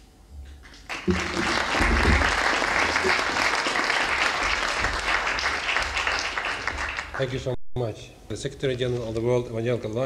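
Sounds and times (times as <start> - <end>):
audience applauding: 0.6 - 7.5.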